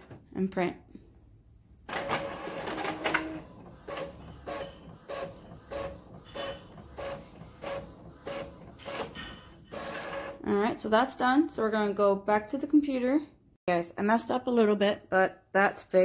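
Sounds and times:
inkjet printer carriage whirring: 1.9s - 10.4s.

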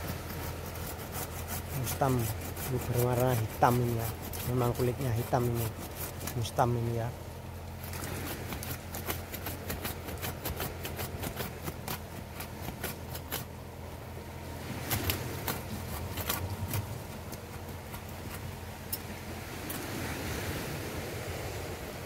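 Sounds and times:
blade chopping tree roots: 0.0s - 7.0s, 7.8s - 13.6s, 14.7s - 18.5s.

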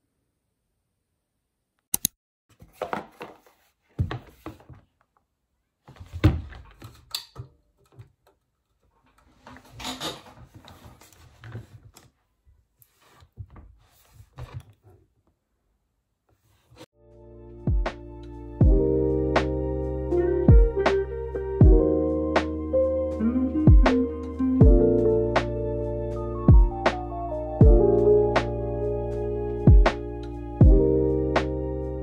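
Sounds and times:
sharp click: 1.9s - 2.2s.

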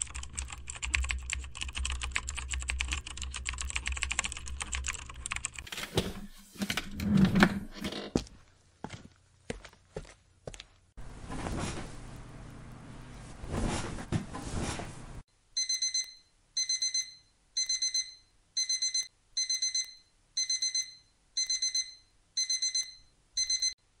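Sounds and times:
electronic alarm beeping: 15.6s - 23.8s.

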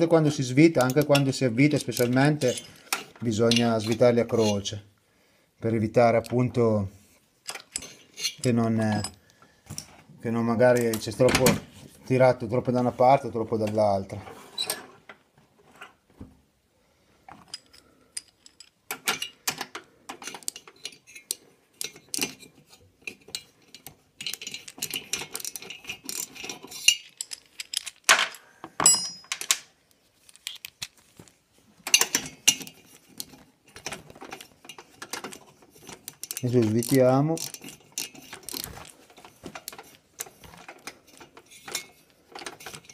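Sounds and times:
metal tools clinking: 0.8s - 4.8s, 7.4s - 9.9s, 17.4s - 29.6s, 31.8s - 42.9s.

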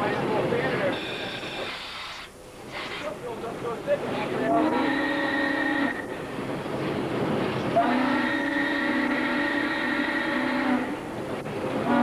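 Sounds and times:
steam locomotive whistle: 4.4s - 6.2s, 7.7s - 11.0s, 11.8s - 12.0s.

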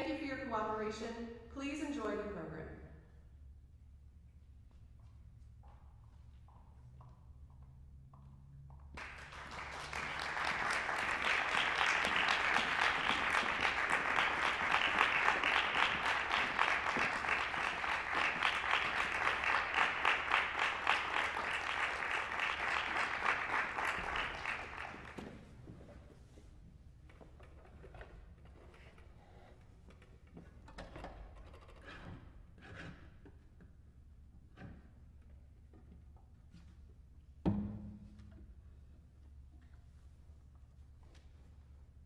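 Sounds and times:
audience applauding: 9.0s - 25.6s.

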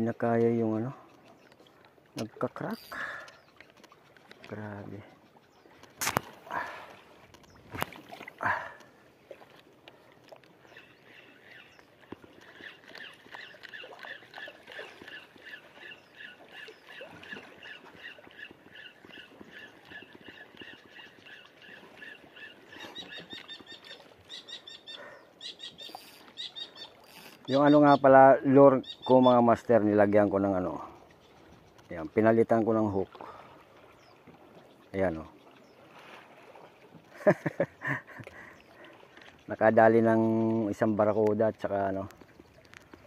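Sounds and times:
water sloshing swish: 0.0s - 28.7s, 29.6s - 43.0s
fishing reel squeaking: 2.7s - 3.5s, 25.6s - 28.0s.

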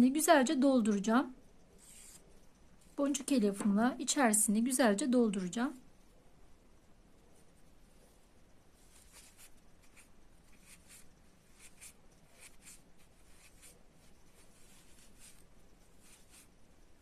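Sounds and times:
soft scratching and rustling: 1.4s - 3.5s, 7.1s - 17.0s.

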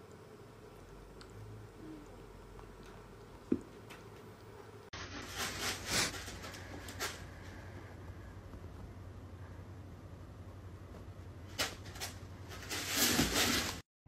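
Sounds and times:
cat scratching in litter box: 5.0s - 7.3s, 11.5s - 13.8s.

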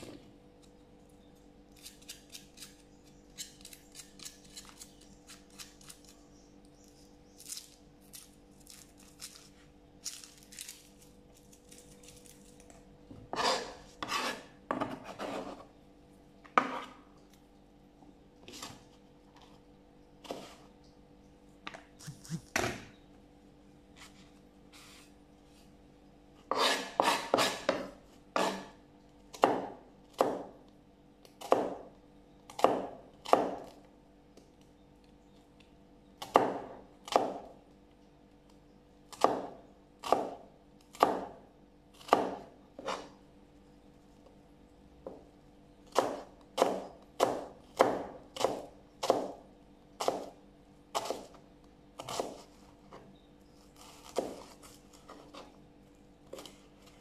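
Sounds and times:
knife cutting onion on board: 13.3s - 15.7s, 26.5s - 30.6s, 31.4s - 31.8s, 42.0s - 43.1s, 45.9s - 49.4s, 50.0s - 51.4s, 52.0s - 52.6s, 53.8s - 55.5s.

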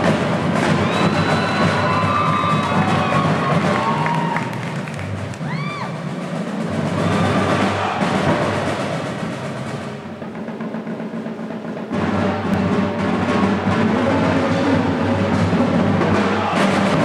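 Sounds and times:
drumline playing: 0.0s - 17.0s
heavy low drums: 0.0s - 17.0s.

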